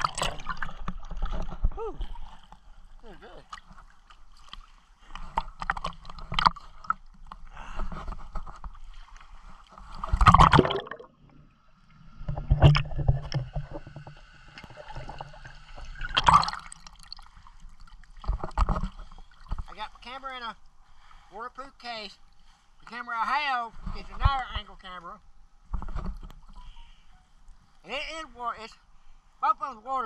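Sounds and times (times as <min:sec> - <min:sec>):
water sloshing and gurgling: 0:00.0 - 0:21.3, 0:25.3 - 0:27.8
loud water splashes: 0:10.1 - 0:11.1, 0:16.0 - 0:16.9.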